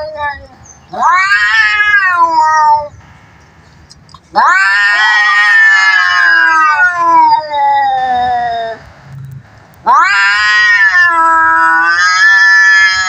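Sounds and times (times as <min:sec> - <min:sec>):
cat yowling: 0:00.0 - 0:02.9, 0:04.3 - 0:08.8, 0:09.8 - 0:13.0.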